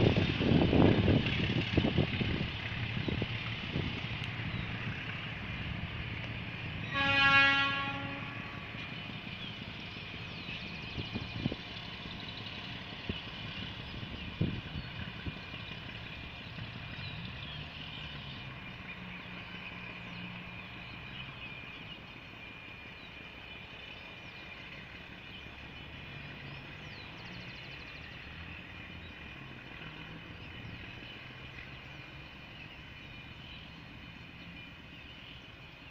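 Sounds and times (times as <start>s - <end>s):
diesel locomotive engine rumbling: 0.0s - 35.9s
locomotive horn blast: 6.6s - 9.0s.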